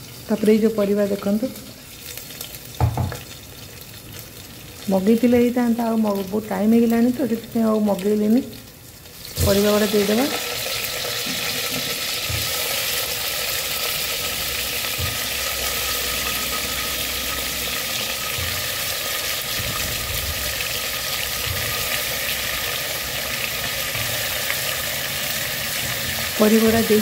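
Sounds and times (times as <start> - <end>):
hot oil sizzling: 0.0 - 27.0
vegetable pieces thudding into pot: 2.8 - 3.2.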